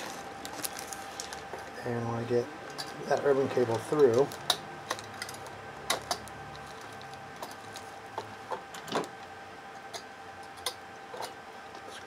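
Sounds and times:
plastic film crinkling: 0.0 - 8.0
faint steady hum: 0.0 - 12.0.

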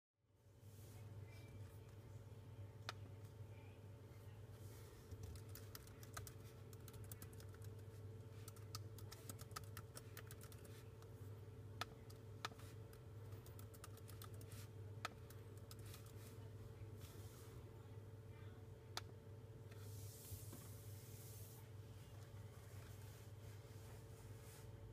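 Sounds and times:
faint steady hum: 0.2 - 24.9
laptop keyboard typing: 5.1 - 10.8, 11.8 - 16.2.

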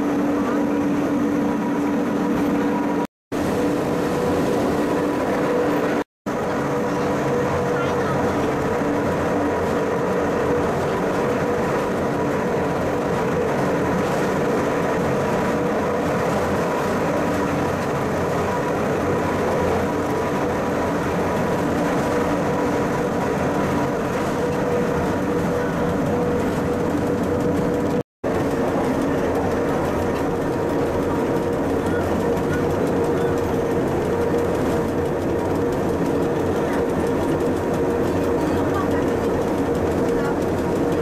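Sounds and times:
railcar running rumble: 0.0 - 41.0.

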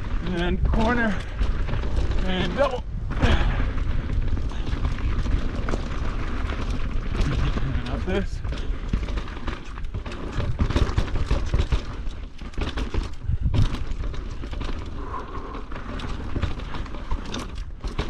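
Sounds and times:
low rumble: 0.0 - 9.0
bike chain and frame rattling: 0.0 - 18.0
tyres on dirt trail: 0.0 - 18.0.

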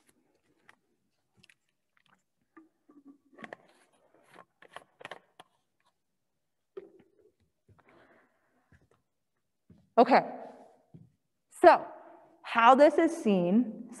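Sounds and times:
microphone handling clicks and rustles: 1.4 - 6.0.

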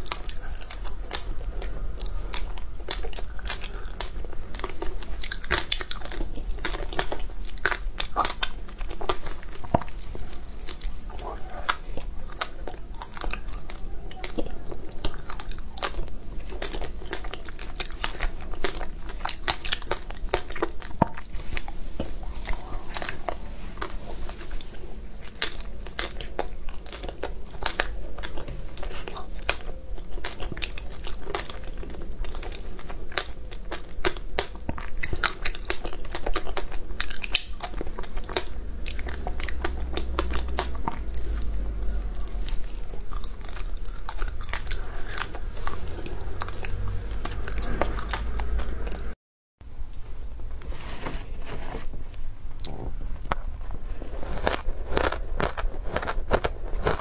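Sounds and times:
crunching frozen ice bars: 54.0 - 57.0.

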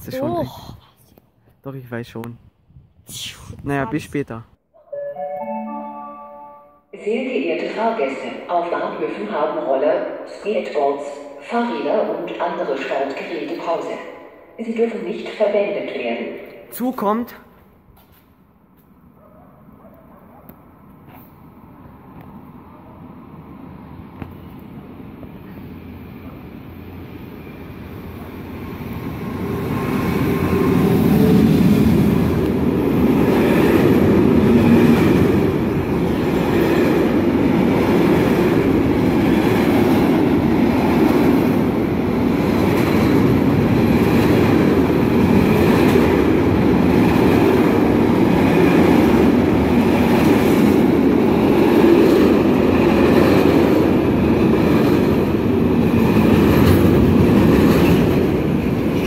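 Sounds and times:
freight train rumbling: 20.6 - 59.0
train wheel clatter: 42.3 - 59.0.

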